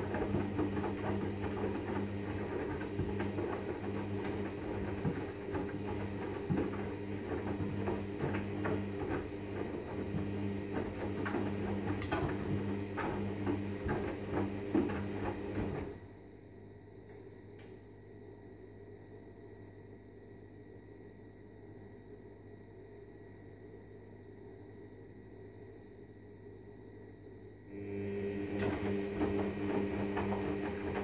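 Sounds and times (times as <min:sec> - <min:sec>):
washing machine motor hum: 0:00.0 - 0:16.3, 0:27.7 - 0:31.0.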